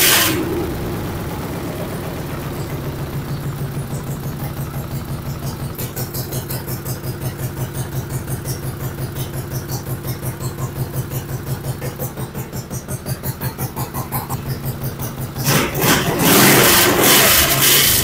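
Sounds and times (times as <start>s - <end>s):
lawn mower engine idling: 0.0s - 18.0s.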